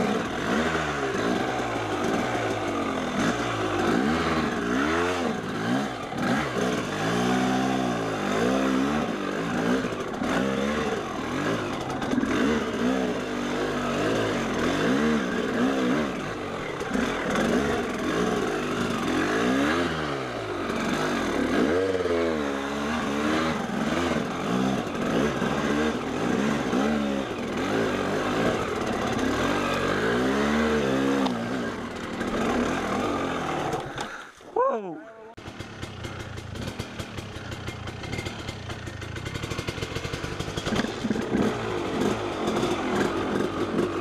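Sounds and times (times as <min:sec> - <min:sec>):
dirt bike engine revving: 0:00.0 - 0:44.0.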